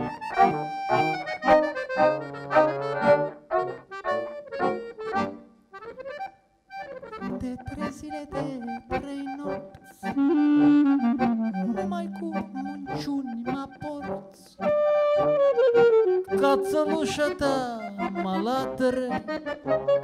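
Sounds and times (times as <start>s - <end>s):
clarinet playing: 0.0s - 7.8s, 8.4s - 18.2s, 19.2s - 20.0s
accordion playing: 0.0s - 20.0s.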